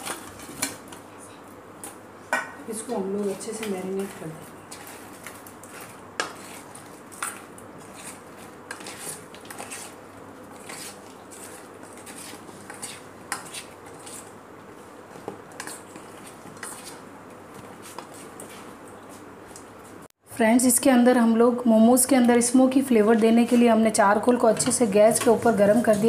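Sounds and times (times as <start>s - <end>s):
spoon scraping metal bowl: 5.6s - 14.3s, 24.4s - 26.0s.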